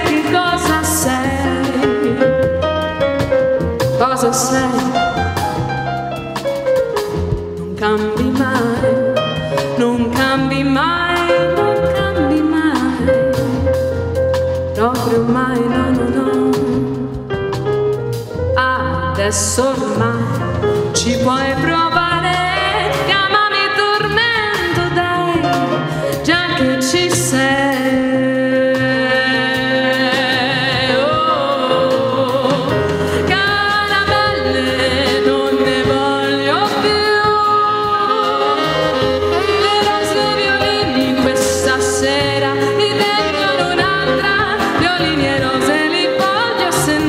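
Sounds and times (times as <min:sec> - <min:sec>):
woman singing into microphone: 0:00.0 - 0:02.6, 0:03.9 - 0:05.2, 0:07.6 - 0:13.7, 0:14.8 - 0:17.3, 0:18.6 - 0:47.0.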